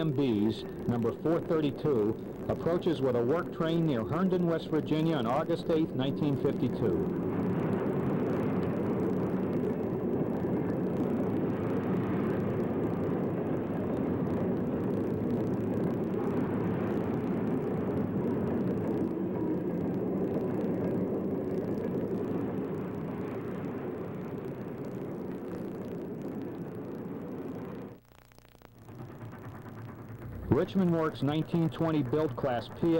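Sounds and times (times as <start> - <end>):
steam freight train rumbling: 28.8 - 32.9.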